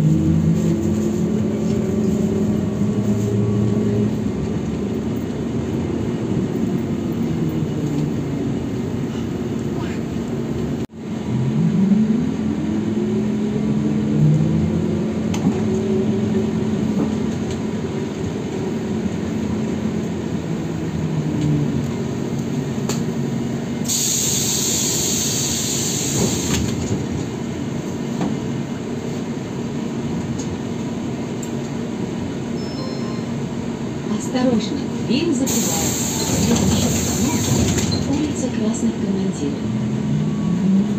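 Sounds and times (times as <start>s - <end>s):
trolleybus motor whine: 0.0s - 40.9s
compressed air hiss: 23.9s - 26.5s, 35.5s - 37.5s.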